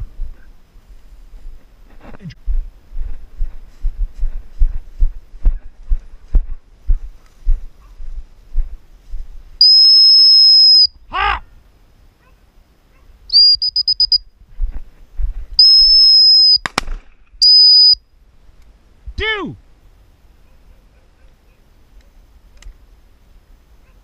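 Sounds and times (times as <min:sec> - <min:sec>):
high-pitched dog whistle blasts: 0:09.6 - 0:11.0, 0:13.3 - 0:14.2, 0:15.6 - 0:16.6, 0:17.4 - 0:18.0.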